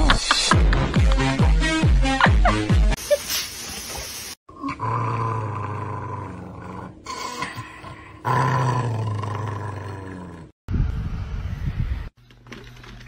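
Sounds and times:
dog growling: 4.5s - 10.6s.

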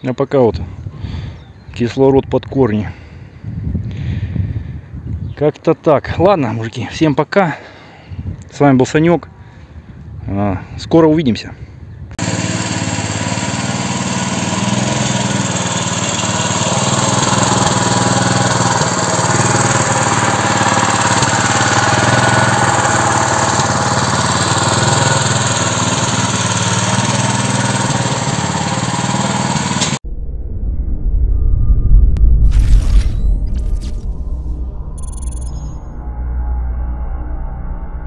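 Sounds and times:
tractor engine passing by: 12.2s - 30.0s.

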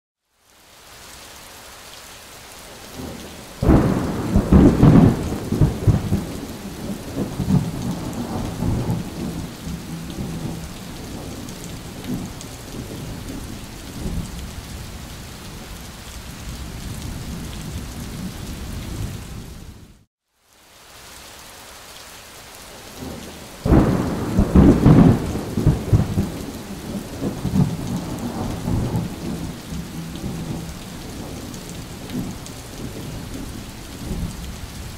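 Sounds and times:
steady rain: 0.2s - 34.9s
rolls of thunder: 3.6s - 14.3s, 23.7s - 34.4s.

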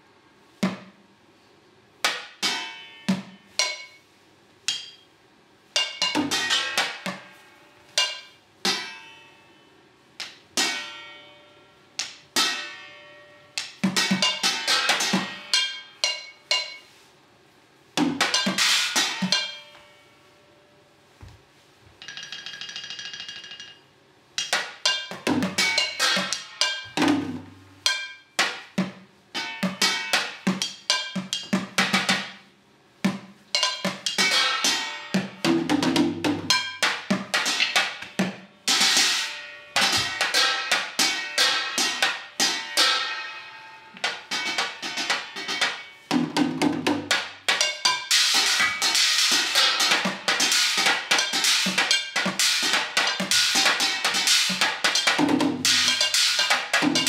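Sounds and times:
tap shoes and drumstick strikes: 21.2s - 21.4s, 39.8s - 42.3s, 43.9s - 57.0s.

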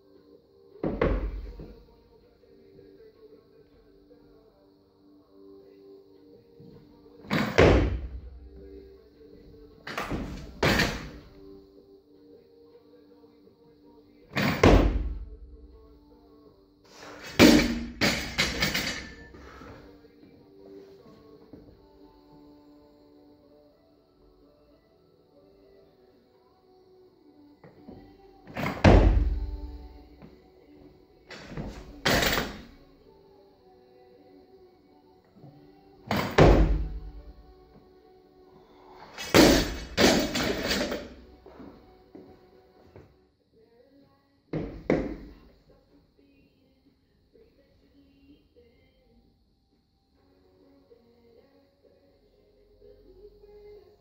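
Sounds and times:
barbell dropped on floor: 9.9s - 11.2s, 17.3s - 19.3s, 31.3s - 32.7s, 39.2s - 41.1s
barbell thud and rattle: 39.2s - 41.1s.

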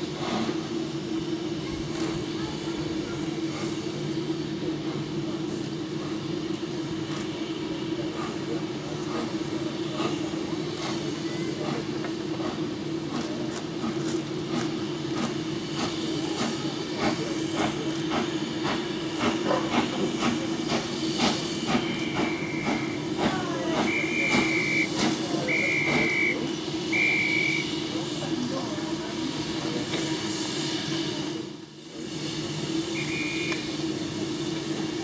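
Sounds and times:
steam locomotive exhaust beats: 0.0s - 35.0s
short high whistle notes: 21.8s - 23.0s, 23.8s - 27.7s, 32.9s - 33.8s.

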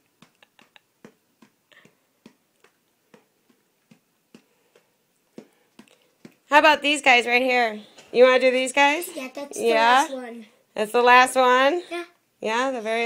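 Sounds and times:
finger tapping on cardboard: 0.1s - 6.4s.

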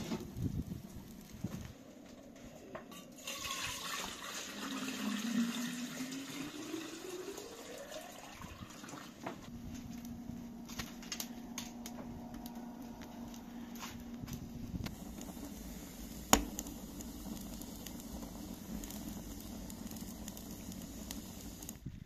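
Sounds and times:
water pouring into metal kettle: 2.9s - 9.4s, 14.9s - 21.8s.

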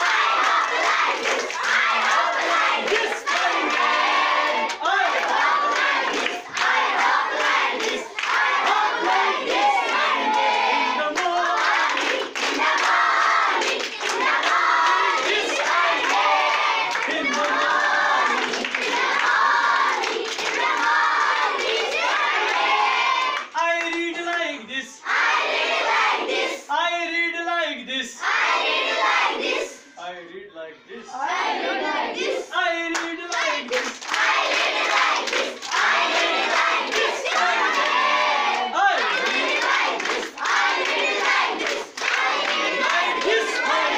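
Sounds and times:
girls singing in unison: 0.0s - 23.5s, 33.3s - 43.9s
hands clapping: 0.0s - 24.5s, 32.8s - 43.9s
hands clapping in time: 32.9s - 43.4s.

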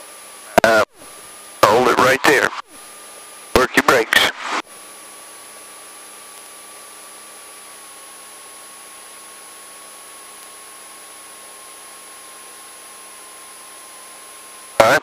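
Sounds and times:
radio intercom hiss: 0.5s - 2.8s, 3.6s - 4.6s, 14.8s - 15.0s.

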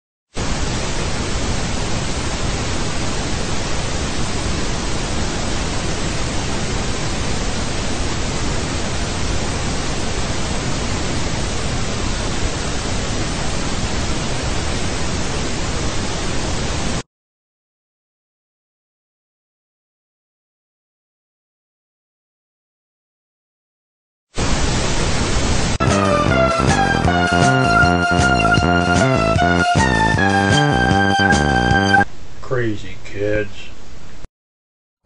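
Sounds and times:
television static hiss: 0.4s - 17.0s, 24.4s - 25.8s, 32.0s - 34.3s.

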